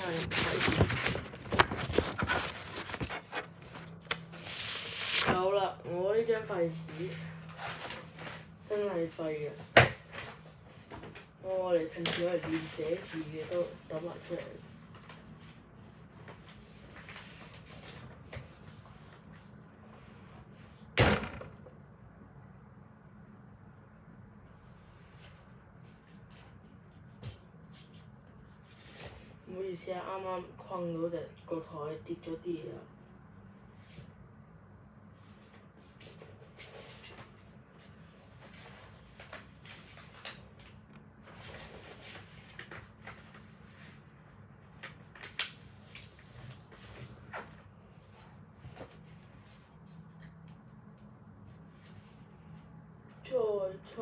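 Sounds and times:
paper rustling: 0.0 - 5.6, 35.3 - 50.6.

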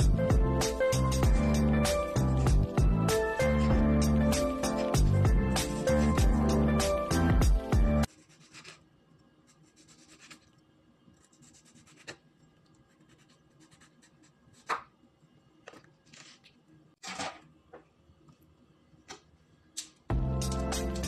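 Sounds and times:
knife slicing through tomato: 8.1 - 8.8.

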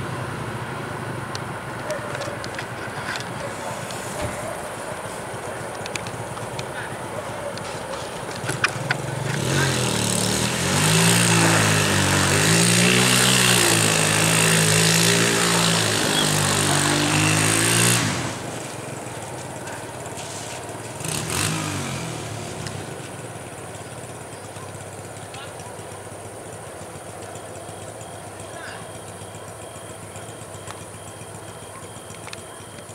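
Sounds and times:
electric train motor whine: 9.8 - 19.4.

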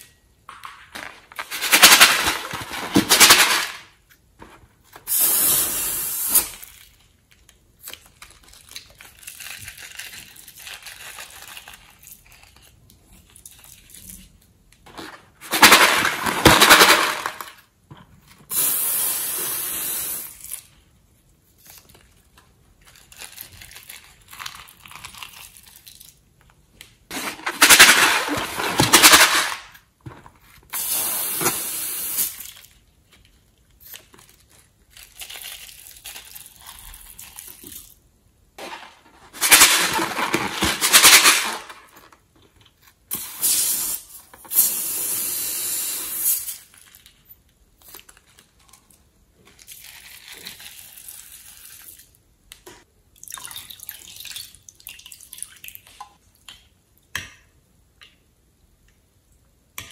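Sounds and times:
glitter pouring with rustling patter: 8.2 - 14.2, 33.8 - 38.0, 49.6 - 52.2.

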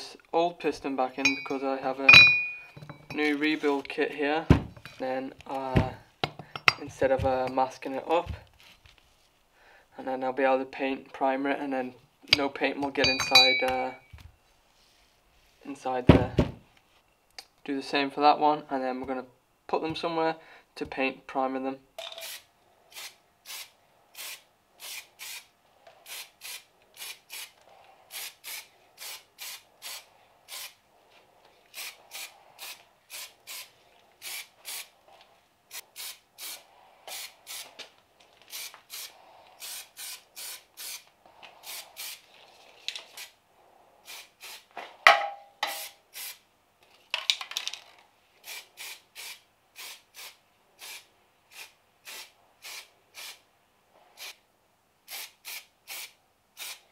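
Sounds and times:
spray can hissing bursts: 22.2 - 27.5, 28.1 - 30.8, 31.7 - 34.9, 35.7 - 37.7, 38.5 - 41.0, 41.6 - 42.2, 44.0 - 44.7, 45.7 - 46.4, 48.4 - 53.4, 54.2 - 54.4, 55.1 - 56.8.

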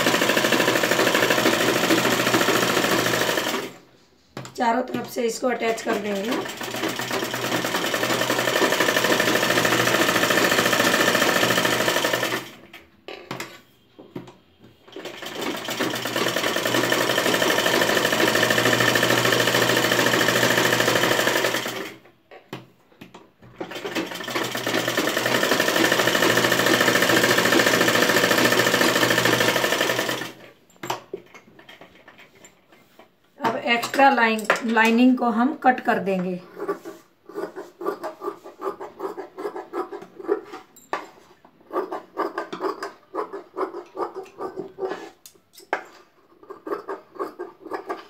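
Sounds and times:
sewing machine stitching: 0.0 - 3.8, 5.0 - 12.6, 14.9 - 22.0, 23.6 - 30.4.

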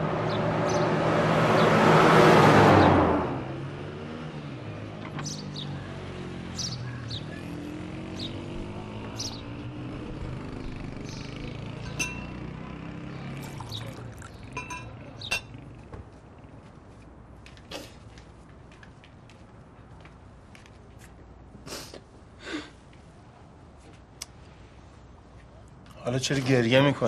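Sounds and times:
glass and china clinking: 11.9 - 12.4, 13.4 - 15.6.

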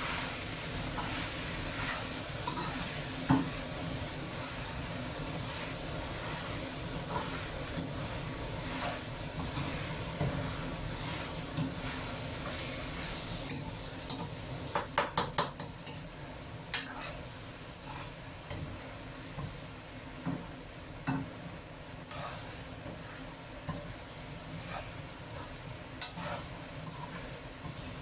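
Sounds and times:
food sizzling in oil in a wok: 0.0 - 28.0
spatula stirring and scraping: 0.0 - 28.0
spatula knocking against wok: 14.7 - 16.0.

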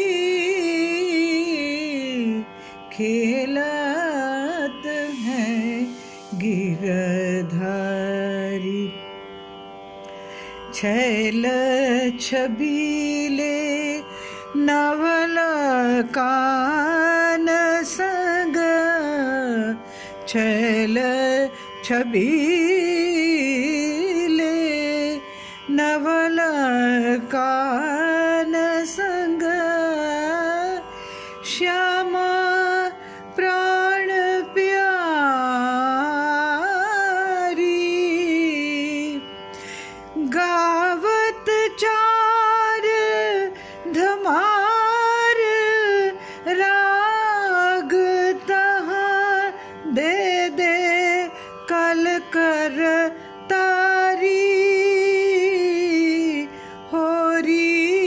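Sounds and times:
woman singing: 0.0 - 9.1, 10.7 - 39.3, 40.1 - 58.0
tanpura drone: 0.0 - 58.0.

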